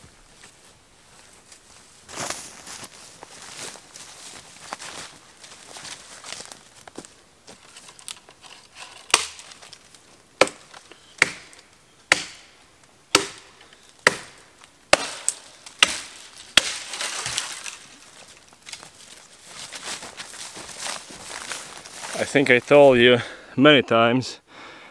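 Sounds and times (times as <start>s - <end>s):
machete chopping branch: 9.0s - 9.6s, 10.4s - 17.8s
needles rustling: 15.2s - 23.1s.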